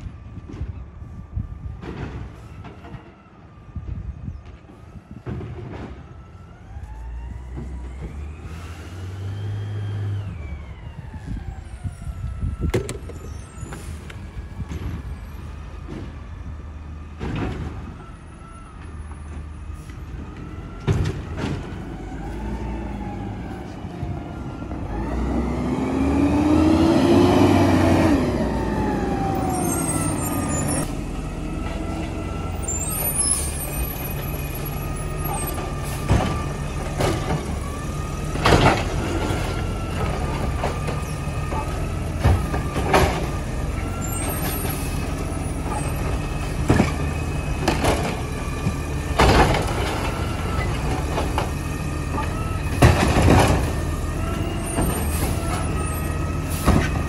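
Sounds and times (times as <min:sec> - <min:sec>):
sharp knocks and clanks: 0:12.7 - 0:13.3
garbage truck engine revving: 0:20.6 - 0:57.0.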